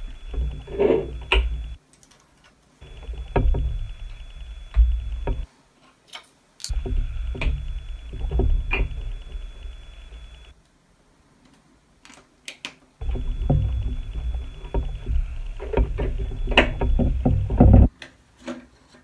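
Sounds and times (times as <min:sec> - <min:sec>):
low hum: 0:00.0 - 0:01.8, 0:02.8 - 0:05.5, 0:06.7 - 0:10.5, 0:13.0 - 0:17.9
plastic pieces clicking together: 0:01.8 - 0:02.6, 0:11.4 - 0:12.9.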